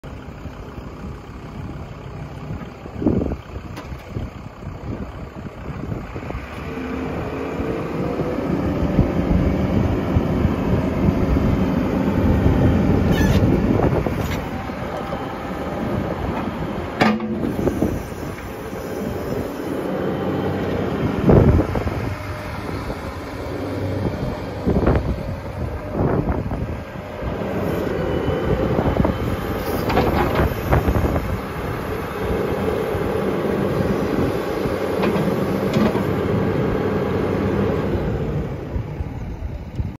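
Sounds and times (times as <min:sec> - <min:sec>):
excavator engine running: 0:00.0 - 0:40.0
metal clanks and knocks: 0:17.0 - 0:17.6.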